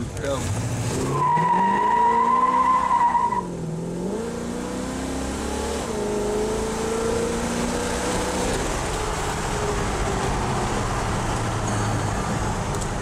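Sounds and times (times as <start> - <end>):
car engine accelerating hard: 0.4 - 11.4
tires squealing: 1.0 - 3.5.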